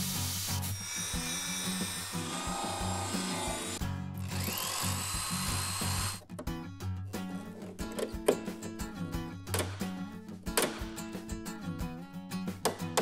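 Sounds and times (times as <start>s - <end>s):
background music: 0.0s - 13.0s
power drill whining: 0.7s - 6.2s.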